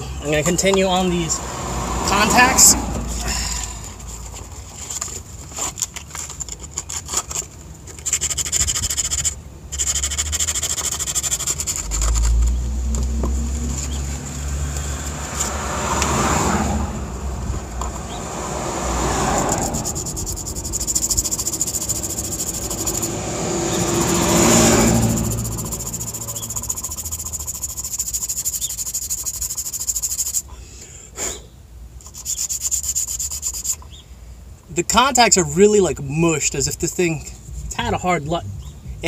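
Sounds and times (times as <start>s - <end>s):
sandpaper rubbing metal contacts: 3.5s - 12.6s, 19.4s - 30.5s, 32.0s - 33.8s
low rumble: 37.4s - 39.0s.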